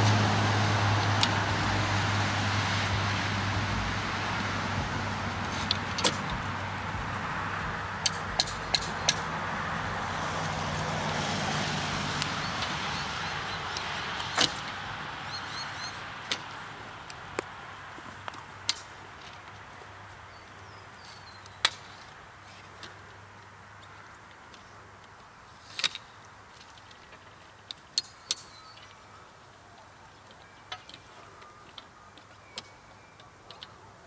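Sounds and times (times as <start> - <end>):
distant traffic rush: 0.0 - 34.0
barrier parts clicking and knocking: 8.0 - 9.3.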